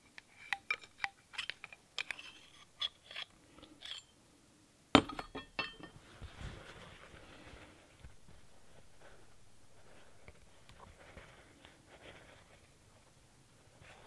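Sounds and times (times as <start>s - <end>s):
metal parts clicking and clinking: 5.0s - 6.0s.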